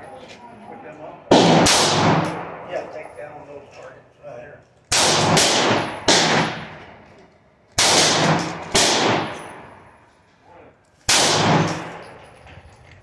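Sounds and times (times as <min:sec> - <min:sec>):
handgun shots echoing: 0:04.9 - 0:06.9, 0:07.8 - 0:09.7, 0:11.1 - 0:12.2.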